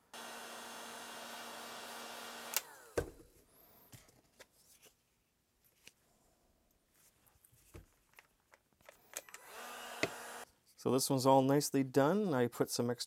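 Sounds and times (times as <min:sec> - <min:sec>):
heat gun blowing: 0:00.0 - 0:03.1, 0:09.2 - 0:10.5
fan winding down whine: 0:00.1 - 0:03.0.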